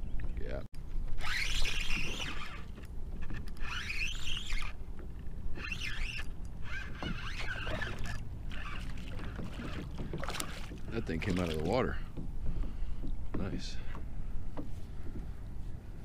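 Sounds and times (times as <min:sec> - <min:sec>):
fishing reel scratching: 0:01.2 - 0:04.8, 0:05.5 - 0:09.8
water splashing: 0:06.7 - 0:12.1.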